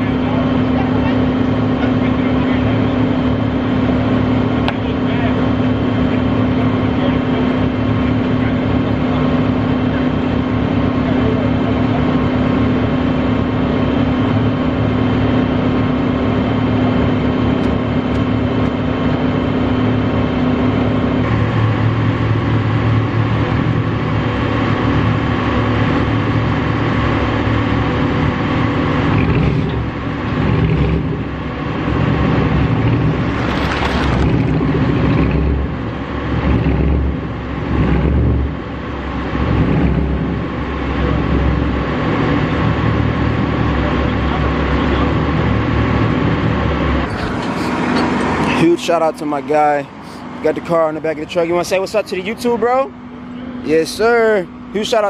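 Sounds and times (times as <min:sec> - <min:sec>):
truck engine running under load: 0:00.0 - 0:55.0
winch dragging a car: 0:25.8 - 0:53.0.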